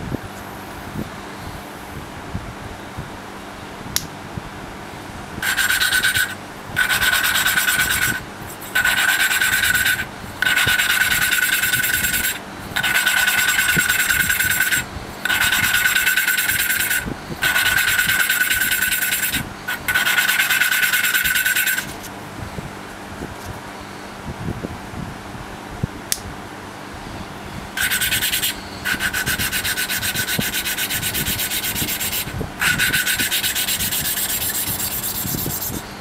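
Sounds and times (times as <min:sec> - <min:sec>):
valve lapping gritty grind: 0:05.4 - 0:21.9.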